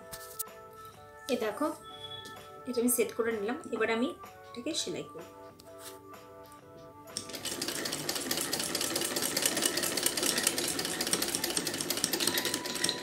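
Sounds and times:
sewing machine running fast: 7.2 - 13.0.

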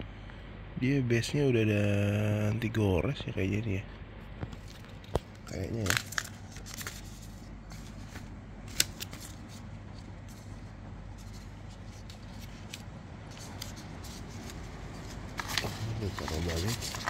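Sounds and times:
plastic packaging rustling: 4.5 - 17.0.

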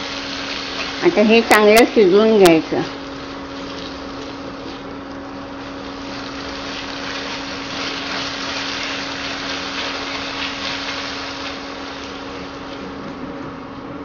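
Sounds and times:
vegetables sizzling in a pan: 0.0 - 13.0
cooling fan hum: 0.0 - 14.0
spatula stirring in a pan: 5.7 - 12.1.

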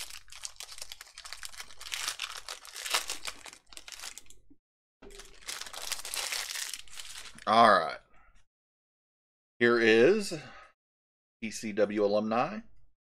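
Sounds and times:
foil wrapper crinkling and tearing: 0.0 - 4.4, 5.0 - 7.6.

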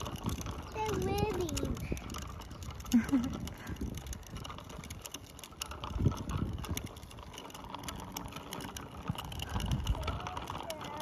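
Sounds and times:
bicycle freewheel ticking: 0.0 - 11.0.

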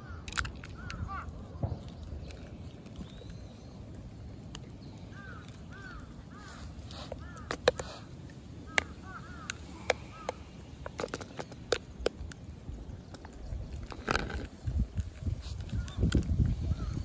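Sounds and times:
cat eating dry kibble: 0.3 - 16.7
bird calling: 4.8 - 11.6.

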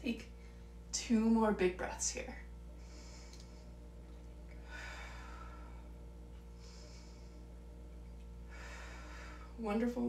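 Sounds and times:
low steady hum: 0.0 - 10.0
person breathing deeply: 2.7 - 9.6.

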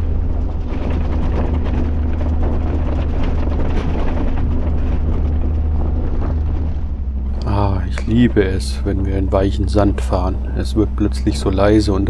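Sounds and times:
diesel engine droning: 0.0 - 12.0
truck cab clattering and rattling: 0.0 - 12.0.

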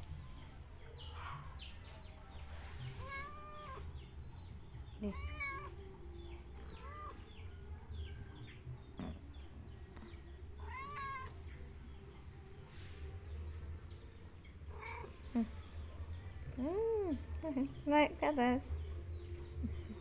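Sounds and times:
cat meowing: 3.0 - 3.9, 5.0 - 5.8, 6.7 - 7.2, 10.6 - 11.4.

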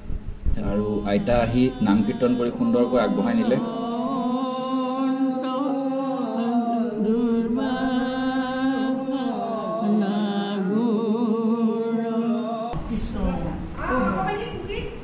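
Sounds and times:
voices singing devotional chant: 0.6 - 15.0.

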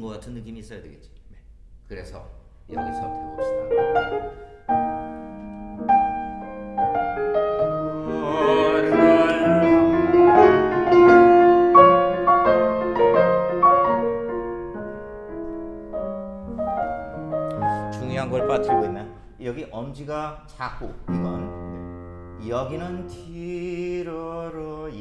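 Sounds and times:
grand piano playing: 2.7 - 19.6, 21.0 - 25.0
person singing: 7.9 - 10.9.

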